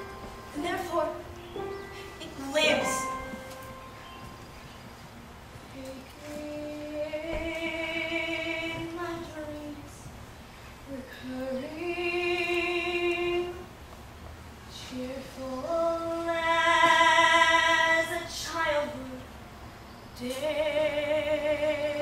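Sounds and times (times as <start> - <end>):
woman singing slowly: 0.0 - 3.5, 5.7 - 10.1, 10.9 - 13.7, 20.2 - 22.0.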